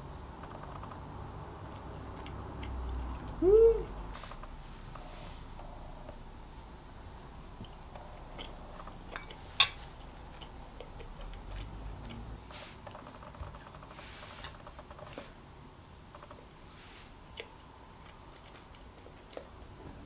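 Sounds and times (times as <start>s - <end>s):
metal spoon clinking on plate: 9.1s - 9.8s
tableware clicking: 9.1s - 9.8s.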